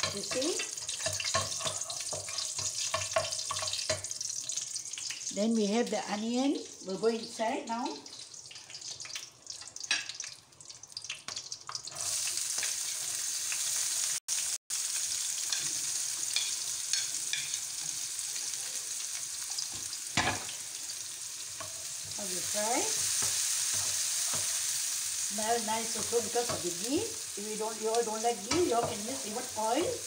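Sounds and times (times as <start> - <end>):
spatula tapping wok: 0.0 - 4.2, 16.3 - 17.6
onions sizzling in a wok: 0.0 - 30.0.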